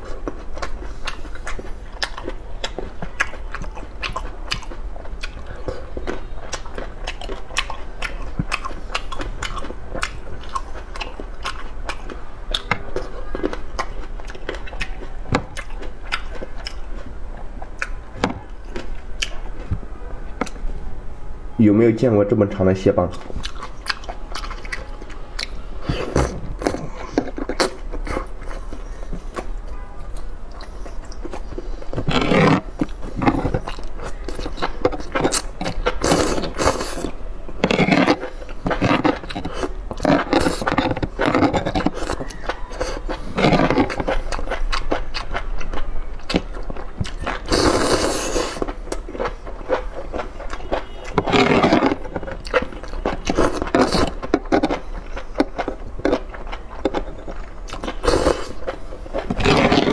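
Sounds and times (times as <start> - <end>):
chewing and mouth clicks: 0.0 - 19.8, 23.0 - 59.9
loud slurps: 36.0 - 37.1, 47.4 - 48.7, 57.9 - 58.6.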